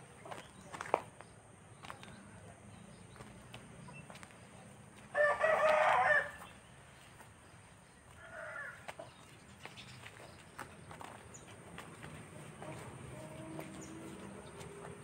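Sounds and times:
rooster crowing: 5.1s - 6.5s.

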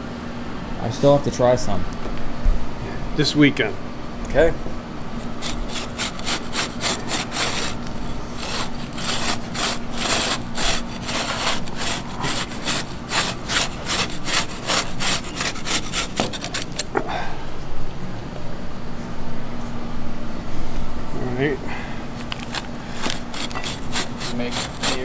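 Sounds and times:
rotary cutter crunching cookie bark: 5.1s - 17.0s, 22.3s - 25.0s.

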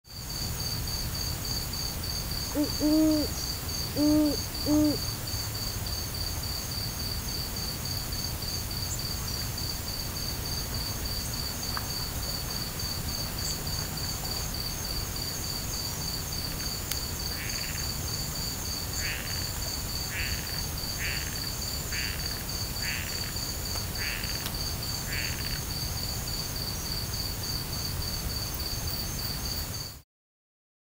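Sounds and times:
crickets chirring: 0.1s - 30.0s
frog croaking: 2.5s - 5.1s, 18.9s - 19.5s, 20.1s - 23.4s, 24.0s - 25.6s.

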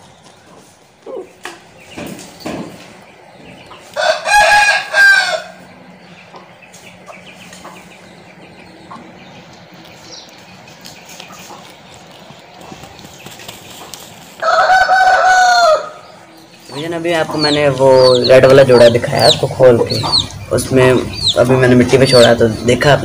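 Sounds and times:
rooster crowing: 3.9s - 5.7s, 14.4s - 16.2s.

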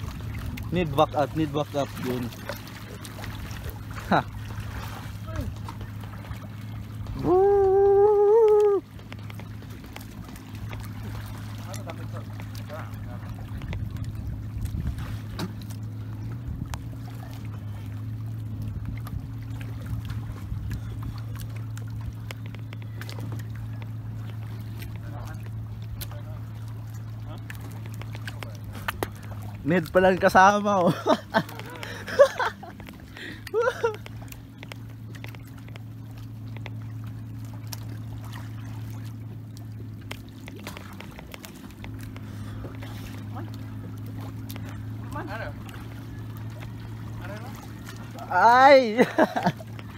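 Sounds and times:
small ticks and splashes: 0.0s - 7.1s, 8.0s - 49.9s
boat engine running: 0.0s - 49.9s
water trickling: 0.0s - 49.9s
light clicks and knocks: 9.0s - 11.0s, 21.5s - 26.1s, 27.4s - 29.3s, 34.0s - 37.9s.

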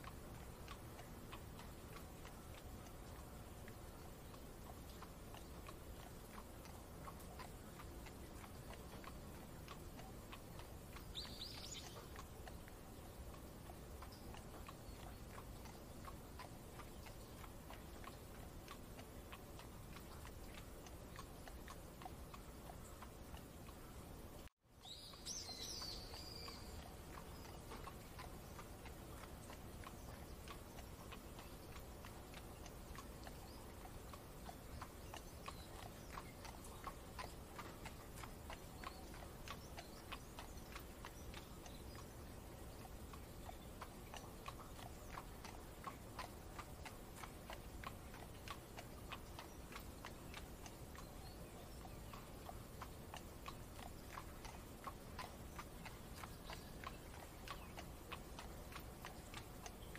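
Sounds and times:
horse hooves clip-clopping: 0.0s - 59.9s.

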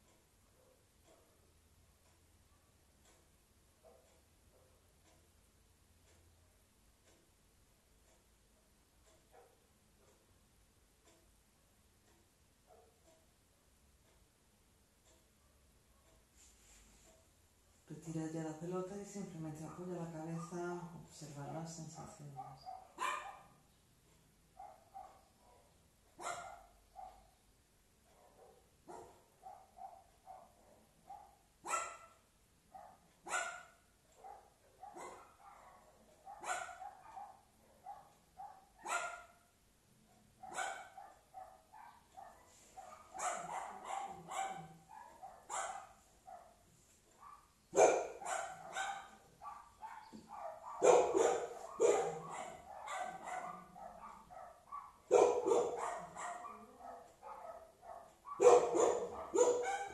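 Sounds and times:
dog barking: 0.5s - 1.5s, 3.8s - 4.9s, 12.7s - 13.0s, 19.6s - 20.8s, 22.0s - 23.7s, 24.6s - 27.4s, 28.1s - 39.5s, 40.4s - 59.9s.

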